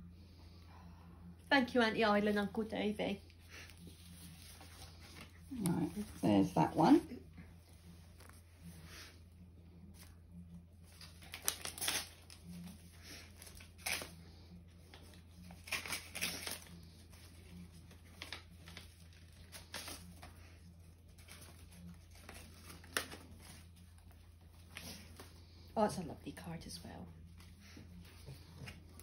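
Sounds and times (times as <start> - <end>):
steady low hum: 0.0 - 11.3
paper envelope rustling and tearing: 10.8 - 25.6.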